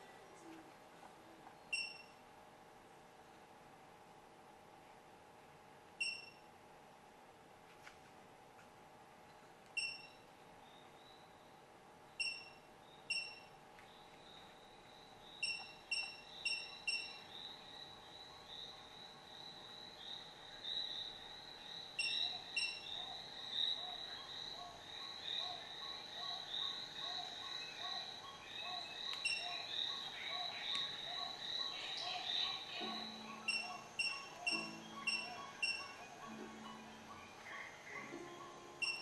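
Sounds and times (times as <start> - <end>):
short electronic beeps: 1.7 - 2.2, 6.0 - 6.4, 9.8 - 10.2, 12.2 - 13.5, 15.4 - 17.2, 22.0 - 22.8, 29.2 - 29.5, 33.4 - 36.0, 38.8 - 39.0.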